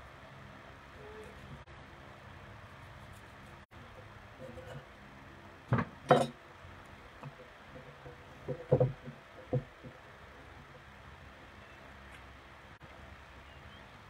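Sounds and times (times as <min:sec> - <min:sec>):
low background noise: 0:00.0 - 0:14.0
dishes and utensils knocking: 0:05.7 - 0:06.4, 0:07.9 - 0:09.9.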